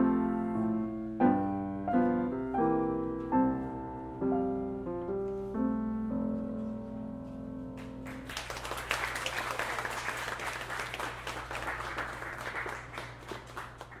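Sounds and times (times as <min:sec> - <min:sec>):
piano chord: 0:00.0 - 0:08.4
audience applause: 0:07.8 - 0:14.0.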